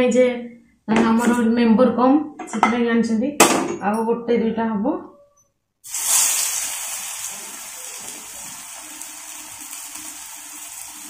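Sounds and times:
fritters sizzling in oil: 0:05.9 - 0:11.0.

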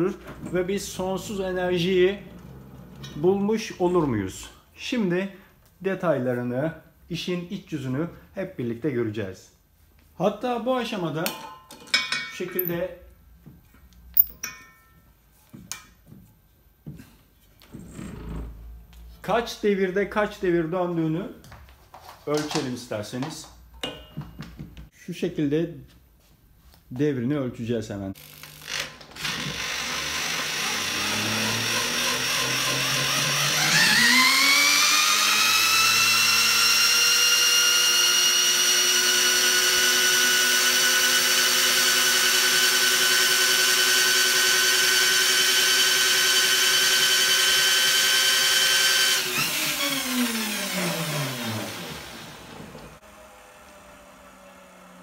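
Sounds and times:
power drill spinning motor whine: 0:28.2 - 0:55.0.

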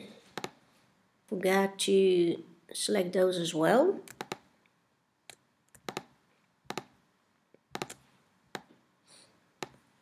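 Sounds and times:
computer mouse clicking: 0:00.4 - 0:00.6, 0:04.1 - 0:04.5, 0:05.3 - 0:06.1, 0:06.7 - 0:06.9, 0:07.7 - 0:08.7, 0:09.6 - 0:09.8.

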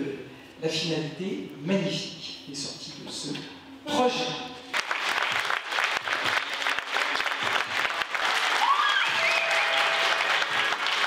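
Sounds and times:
audience applauding: 0:04.7 - 0:11.0
person cheering: 0:08.6 - 0:10.2.

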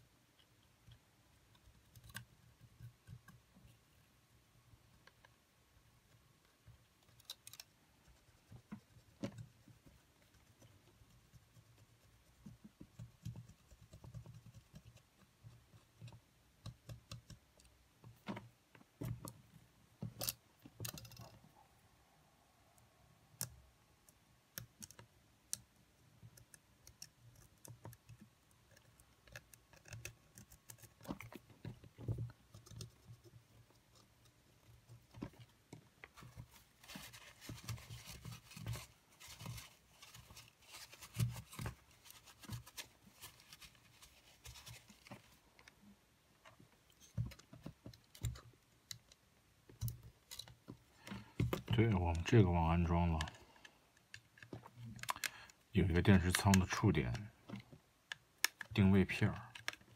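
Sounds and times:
small plastic parts clicking: 0:06.5 - 0:07.8, 0:20.0 - 0:21.4, 0:23.3 - 0:35.9, 0:53.2 - 0:59.9.

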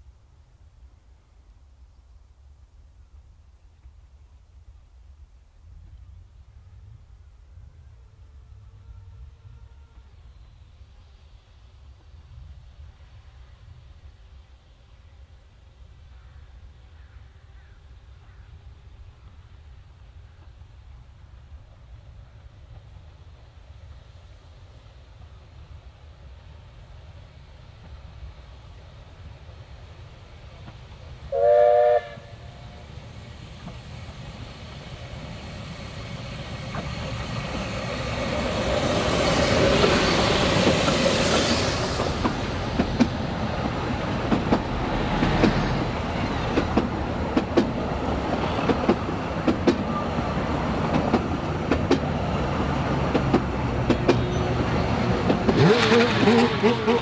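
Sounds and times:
steam locomotive passing: 0:02.5 - 0:57.0
steam locomotive whistle: 0:07.7 - 0:10.4, 0:31.3 - 0:32.9
wheels clicking over rail joints: 0:39.6 - 0:52.2, 0:52.9 - 0:57.0.

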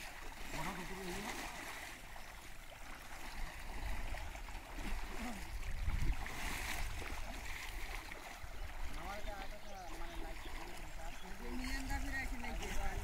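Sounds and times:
splashing of shallow water: 0:00.0 - 0:13.0
wind rumble on microphone: 0:04.9 - 0:07.6.

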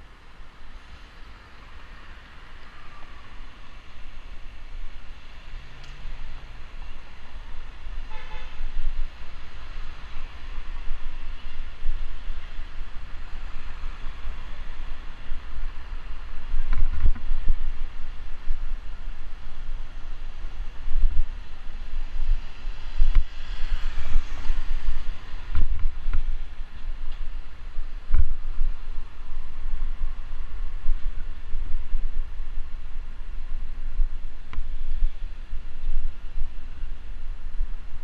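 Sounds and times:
road rumble: 0:00.0 - 0:38.0
wind rushing over microphone: 0:00.0 - 0:38.0
vehicle horn toot: 0:08.0 - 0:08.6.

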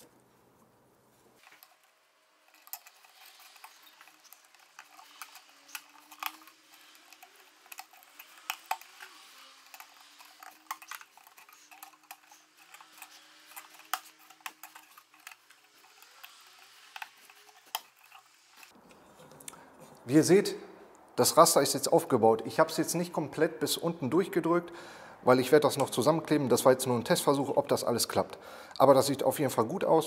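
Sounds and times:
wooden strips clicking: 0:02.5 - 0:18.7.

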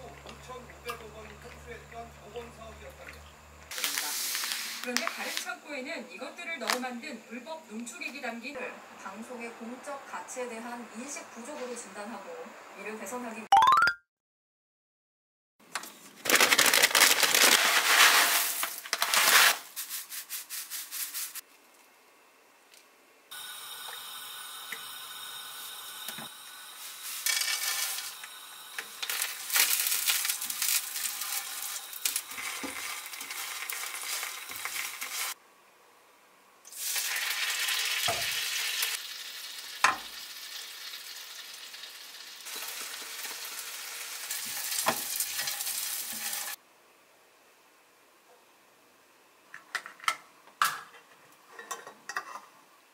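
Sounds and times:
plastic bag rustling: 0:03.7 - 0:05.5, 0:16.1 - 0:21.4, 0:29.0 - 0:35.4
shrimp sizzling in a frying pan: 0:23.4 - 0:35.4, 0:36.7 - 0:46.6.

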